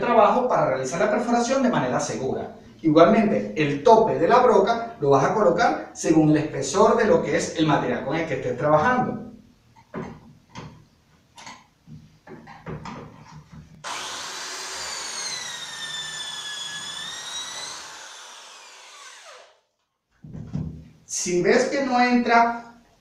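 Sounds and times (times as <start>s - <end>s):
electric drill whining: 13.8s - 19.6s.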